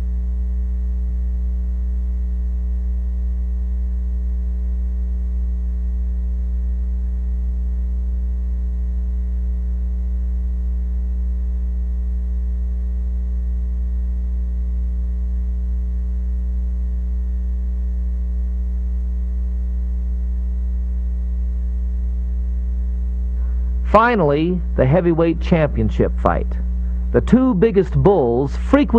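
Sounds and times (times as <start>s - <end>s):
low electrical mains hum: 0.0s - 28.9s.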